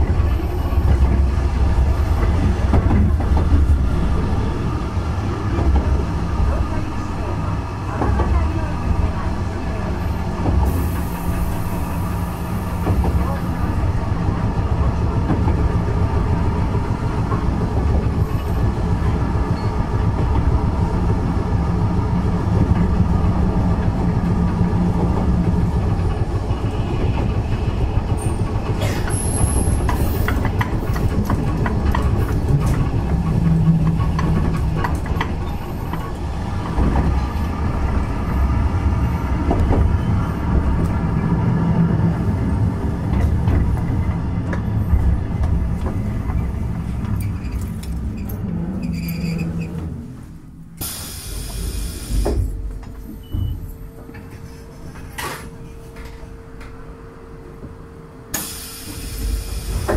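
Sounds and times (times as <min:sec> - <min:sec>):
tram wheels rumbling: 0:00.0 - 0:59.9
wheels clicking over rail joints: 0:22.5 - 0:41.0.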